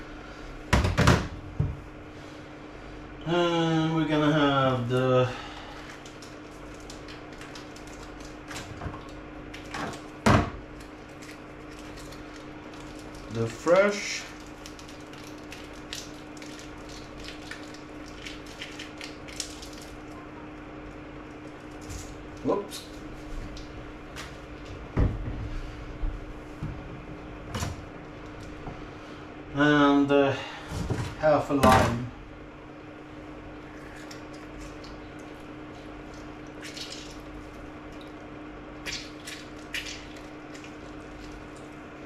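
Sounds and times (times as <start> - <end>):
steady low hum: 0.0 - 42.0
fruit squishing: 5.7 - 24.6, 33.5 - 42.0.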